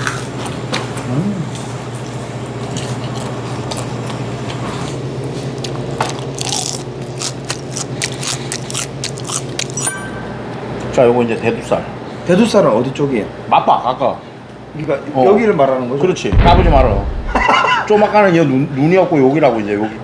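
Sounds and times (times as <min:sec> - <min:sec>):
man chewing food: 0:00.0 - 0:09.9
steady low hum: 0:16.3 - 0:18.1.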